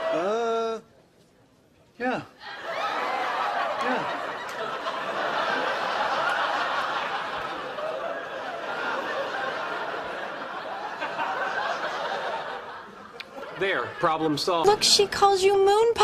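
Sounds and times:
audience laughter: 2.6s - 14.9s.

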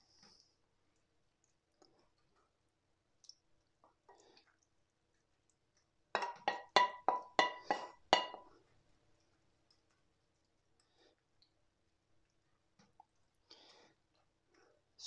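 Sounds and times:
wooden spoon knocking frying pan: 6.2s - 8.5s.

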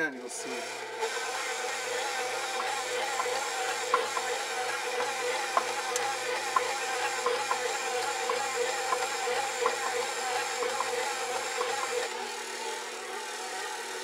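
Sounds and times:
stand mixer motor hum: 0.0s - 14.0s
dough knocking in mixer bowl: 1.2s - 12.2s.

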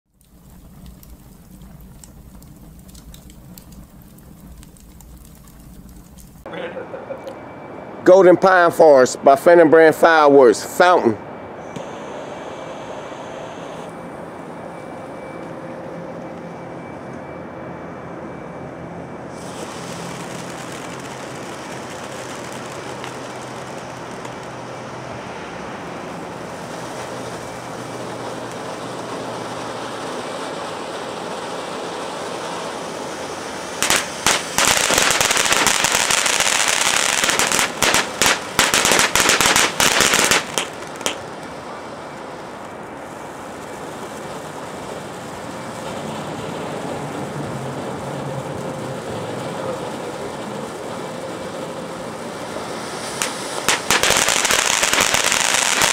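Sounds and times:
firework crackling: 0.1s - 7.0s, 19.3s - 55.9s
firework fountain hissing: 0.1s - 7.2s, 11.6s - 14.6s, 19.3s - 55.9s.

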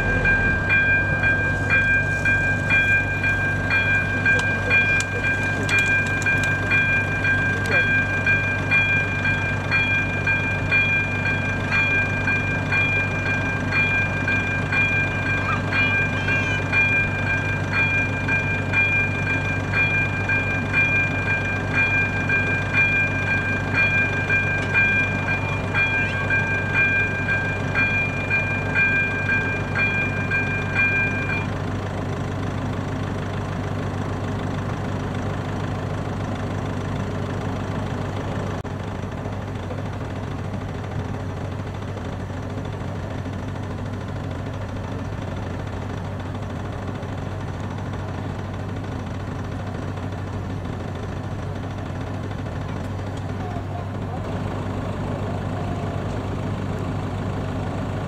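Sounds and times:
level crossing warning bell: 0.0s - 58.0s.

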